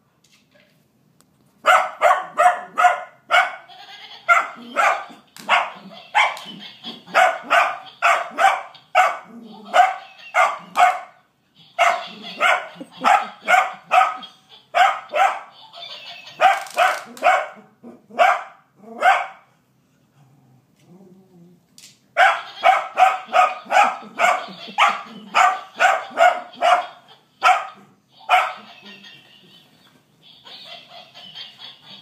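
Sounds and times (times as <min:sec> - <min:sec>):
toy monkey laughing: 0:03.6 - 0:10.8, 0:11.6 - 0:17.2, 0:22.2 - 0:27.5, 0:28.1 - 0:32.0.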